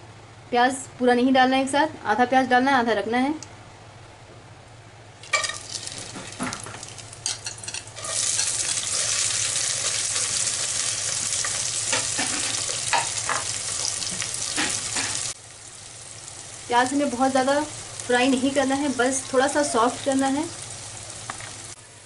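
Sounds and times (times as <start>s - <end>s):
spices and onions sizzling in oil: 5.2s - 22.0s.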